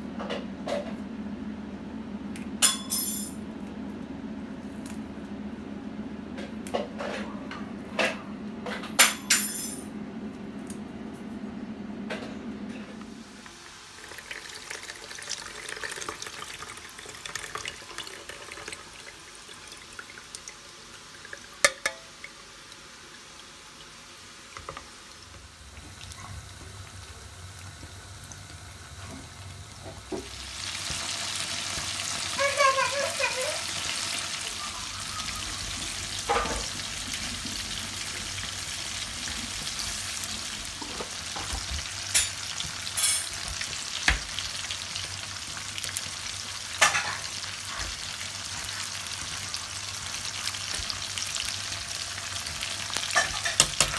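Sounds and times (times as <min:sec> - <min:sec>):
food sizzling in a pot: 0:13.2 - 0:28.0, 0:29.4 - 0:53.9.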